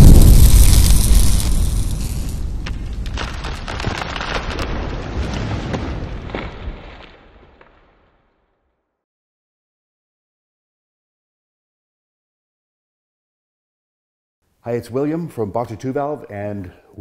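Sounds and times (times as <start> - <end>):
dense crackling with sharp snaps: 0.0 - 7.9.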